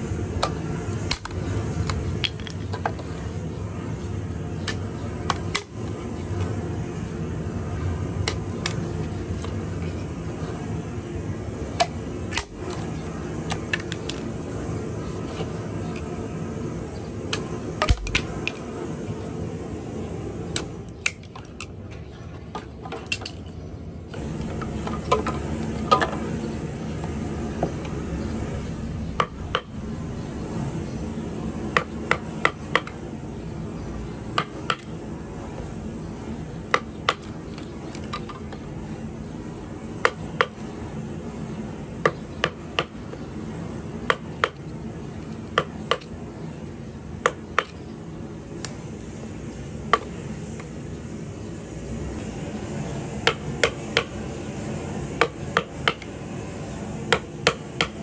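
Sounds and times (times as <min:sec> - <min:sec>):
low background hum: 0:00.0 - 0:58.0
knife chopping bamboo: 0:17.8 - 0:18.3.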